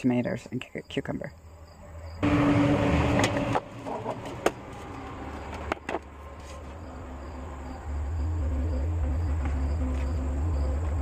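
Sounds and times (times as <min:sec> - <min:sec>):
low rumble: 0:06.1 - 0:11.0.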